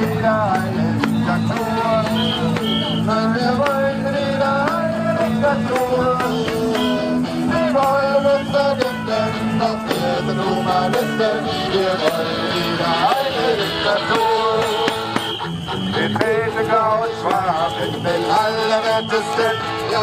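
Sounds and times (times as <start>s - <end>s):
person singing: 0.0s - 15.2s
acoustic guitar: 0.0s - 20.0s
percussion beat: 0.0s - 20.0s.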